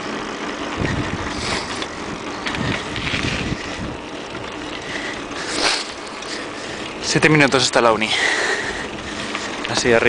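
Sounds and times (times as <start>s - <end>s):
wind buffeting microphone: 0.6s - 5.6s.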